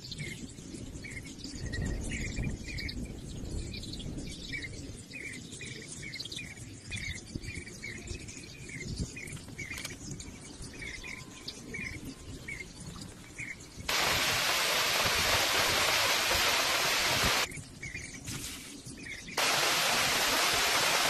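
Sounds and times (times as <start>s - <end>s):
birds chirping: 5.2s - 18.2s, 18.9s - 21.0s.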